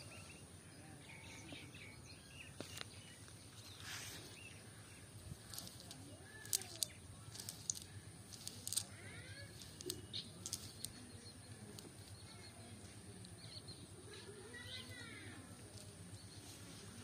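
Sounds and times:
small bird chirping: 0.0s - 17.0s
sharp clicks and rustles: 5.3s - 12.4s.

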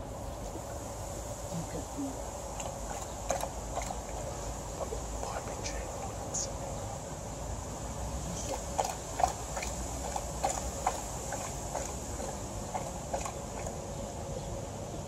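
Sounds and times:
dog lapping water: 2.2s - 6.2s, 8.2s - 14.0s.

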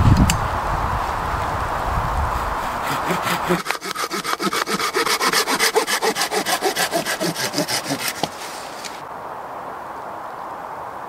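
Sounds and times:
hand saw cutting branch: 2.2s - 9.0s.

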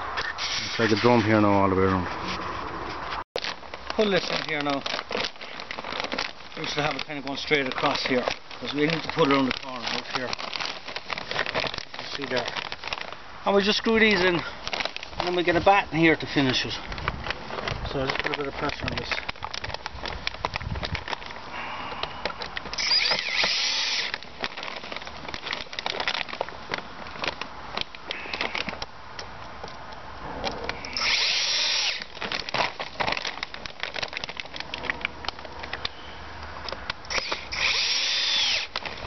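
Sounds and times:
rustling: 0.2s - 36.1s, 36.7s - 39.0s
cordless drill driving screws: 22.7s - 24.2s, 30.9s - 32.1s, 37.1s - 38.8s.

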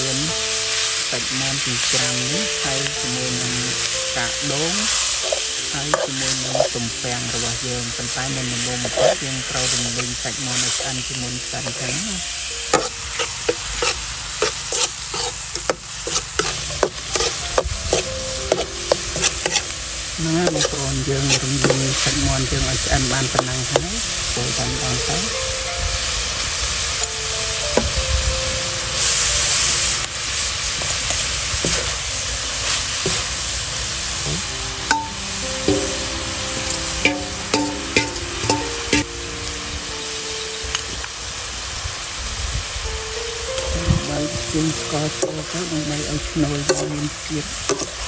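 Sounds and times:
food sizzling in a pan: 0.0s - 48.0s
utensil scraping a pan: 8.8s - 10.8s, 12.7s - 22.2s, 31.6s - 33.4s.

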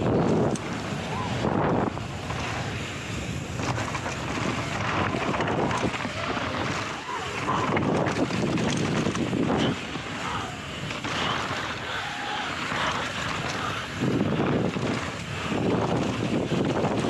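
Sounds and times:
rough rumble: 0.0s - 17.0s
wind buffeting the microphone: 0.0s - 17.0s
knocks and rattles: 3.5s - 17.0s.

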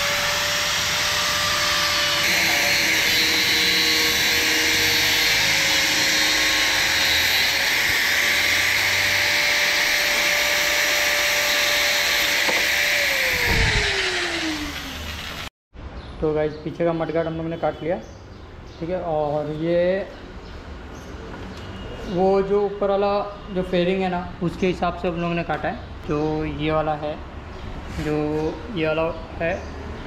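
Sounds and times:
angle grinder cutting plastic: 0.0s - 15.5s.

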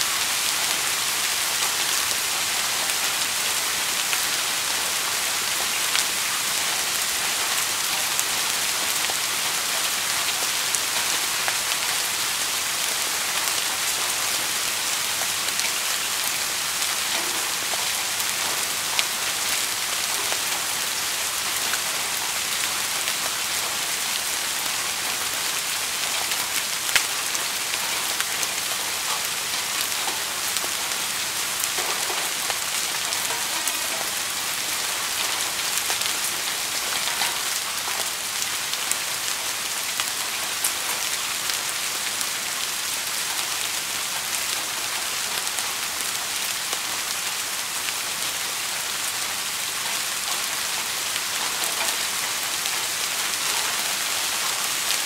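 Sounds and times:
steady rain falling: 0.0s - 55.0s
raindrops ticking: 26.0s - 39.3s.

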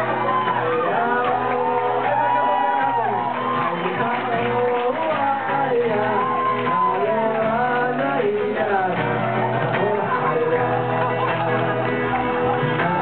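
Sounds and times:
people shouting: 0.0s - 4.3s, 5.8s - 7.8s
guitar: 0.0s - 13.0s
voices singing together: 0.0s - 13.0s.

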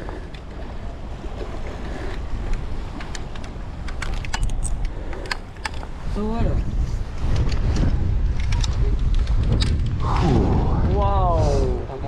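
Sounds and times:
wind buffeting microphone: 0.0s - 12.0s
small metallic clicks and rattles: 2.1s - 5.9s, 7.3s - 9.9s.

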